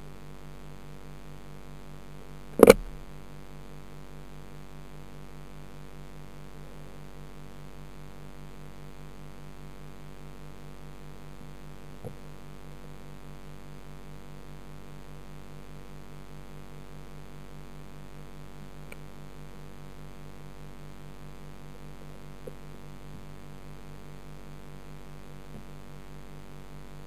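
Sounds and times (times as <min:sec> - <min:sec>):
electrical hum with hiss: 0:00.0 - 0:27.0
low throb: 0:02.6 - 0:03.1
short click: 0:02.6 - 0:03.1.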